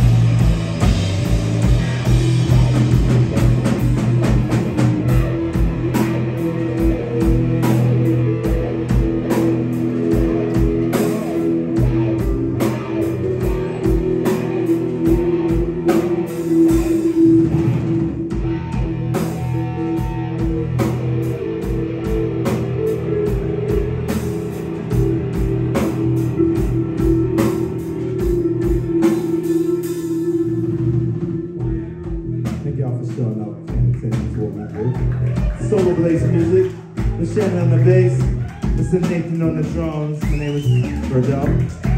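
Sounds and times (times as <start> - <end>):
drum kit with kick drum: 0.0 - 30.1, 33.7 - 41.9
bass guitar: 0.0 - 41.9
electric guitar: 0.0 - 41.9.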